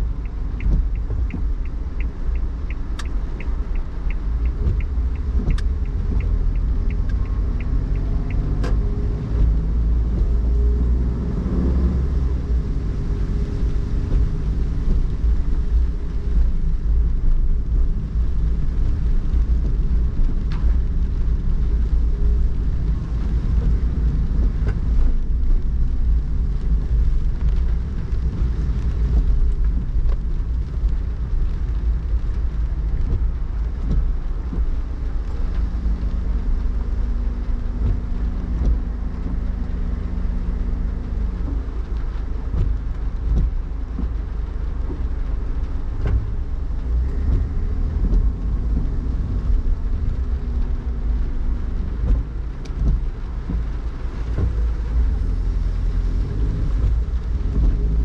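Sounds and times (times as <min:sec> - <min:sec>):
high ticks: 0:00.0 - 0:08.9
car driving on wet road: 0:00.0 - 0:58.0
rain noise: 0:00.0 - 0:58.0.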